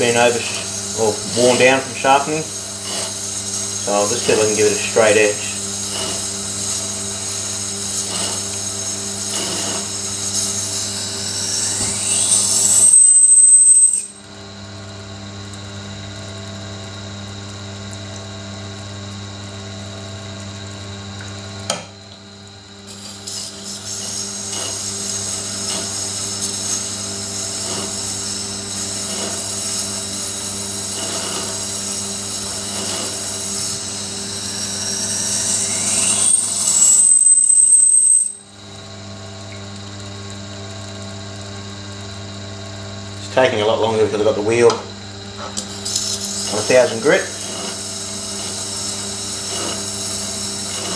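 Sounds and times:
grinder motor humming: 0:00.0 - 0:50.9
knife blade grinding on stone: 0:00.3 - 0:05.2, 0:05.8 - 0:14.2, 0:22.9 - 0:30.2, 0:30.8 - 0:33.9, 0:45.4 - 0:50.9
high whine: 0:09.3 - 0:14.3, 0:33.6 - 0:38.6.

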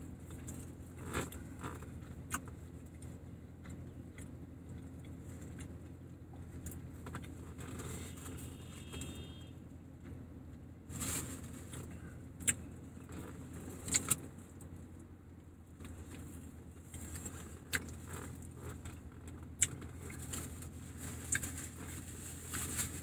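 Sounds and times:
car interior hum: 0:00.0 - 0:23.0
person chewing: 0:00.3 - 0:07.8.

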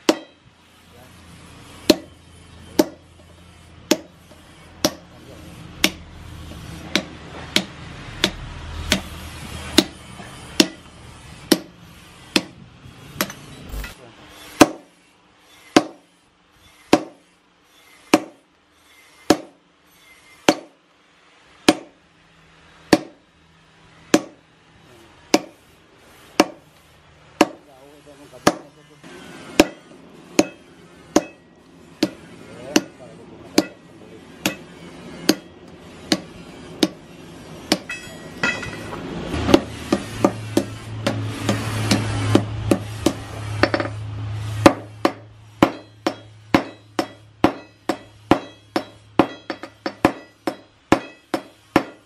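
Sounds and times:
sledgehammer clanging on hot steel: 0:00.0 - 0:00.5, 0:01.8 - 0:06.1, 0:06.8 - 0:15.0, 0:27.4 - 0:52.0.

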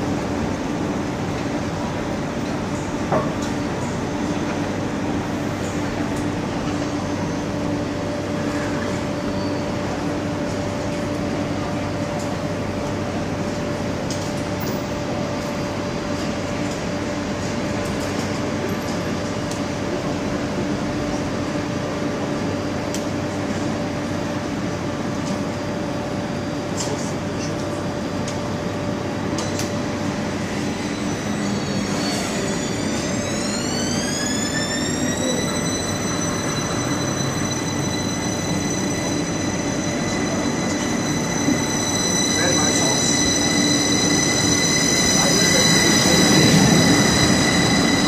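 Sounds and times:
train fans humming and whirring: 0:00.0 - 0:48.0.

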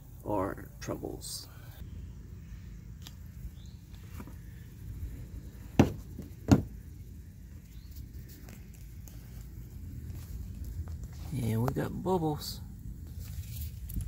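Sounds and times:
low steady rumble: 0:00.0 - 0:14.0
sharp knocks: 0:05.8 - 0:06.8.

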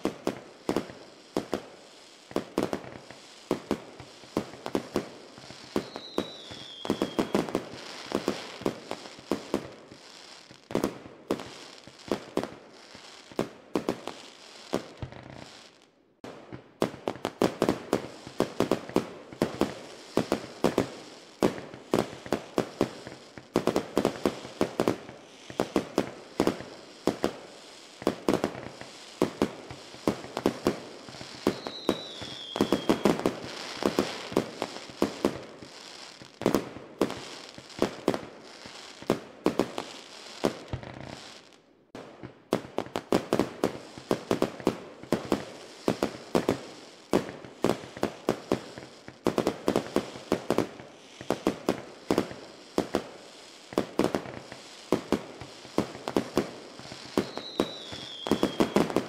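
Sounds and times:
falling firework whistle: 0:00.0 - 0:10.6, 0:28.0 - 0:39.0, 0:54.2 - 0:59.0
fireworks bangs and pops: 0:00.0 - 0:59.0.

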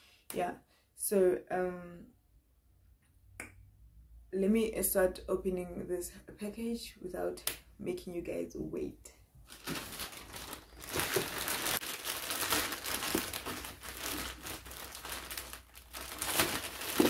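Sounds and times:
packaging crinkling and rustling: 0:09.5 - 0:17.0.

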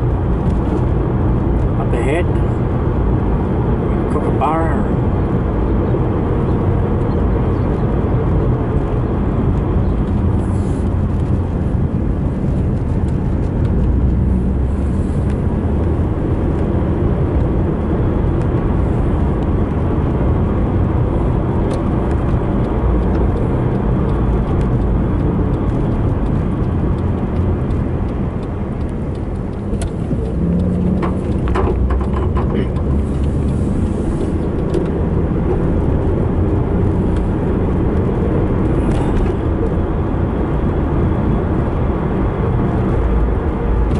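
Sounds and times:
car engine and tyre rumble: 0:00.0 - 0:43.9.

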